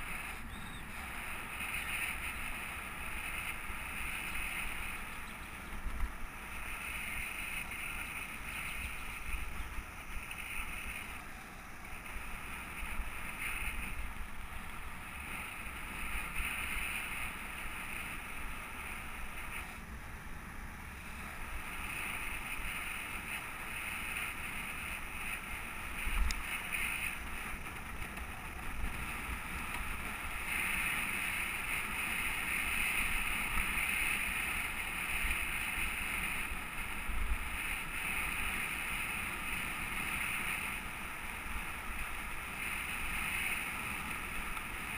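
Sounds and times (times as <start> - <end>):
wind rushing over microphone: 20.7 - 44.9.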